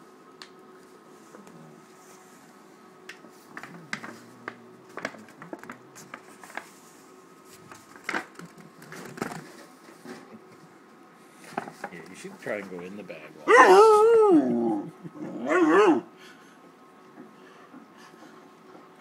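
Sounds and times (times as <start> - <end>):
paper bag rustling and crinkling: 3.4 - 10.3.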